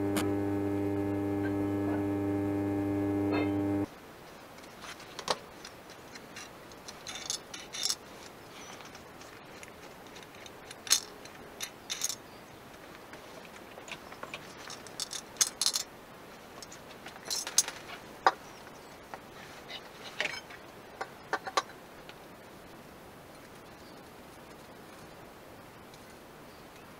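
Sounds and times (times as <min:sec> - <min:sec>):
metal parts clinking and rattling: 0:06.1 - 0:12.2, 0:14.6 - 0:15.9, 0:17.2 - 0:17.8.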